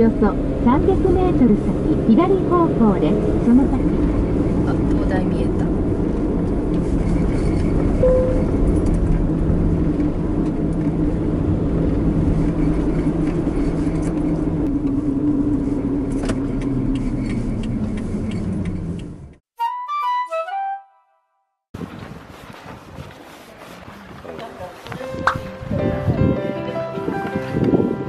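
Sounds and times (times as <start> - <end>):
engine drone: 0.0 - 19.4
short beep: 8.0 - 8.5.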